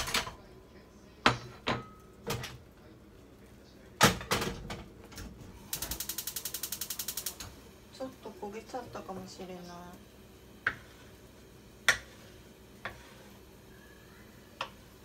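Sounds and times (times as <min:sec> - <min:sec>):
gas hob igniter clicking: 0:05.7 - 0:07.6.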